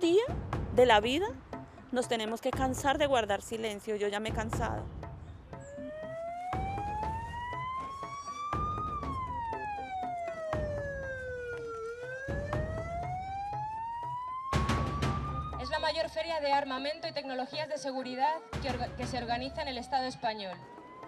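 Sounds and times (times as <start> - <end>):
low thumps: 0.3 - 1.8, 4.2 - 6.0
siren wailing up and down: 5.6 - 16.6, 18.5 - 21.0.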